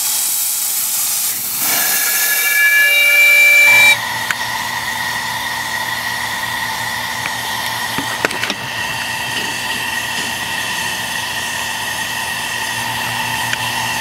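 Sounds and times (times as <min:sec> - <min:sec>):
steady steam hiss: 0:00.0 - 0:14.0
faint steady whine: 0:01.2 - 0:07.7.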